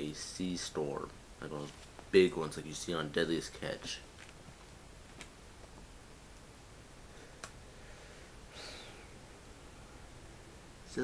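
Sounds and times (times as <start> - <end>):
soft rustle: 1.5 - 2.2.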